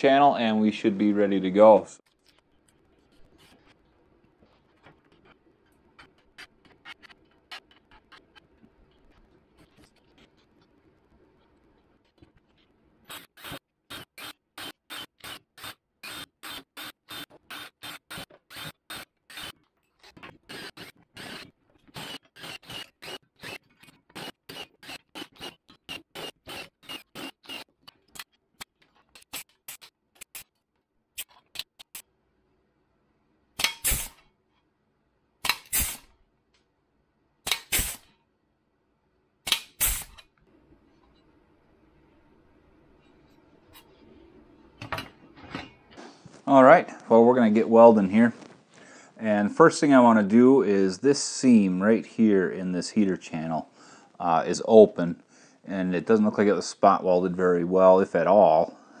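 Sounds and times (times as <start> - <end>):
cordless drill boring sheet metal: 13.1 - 28.3.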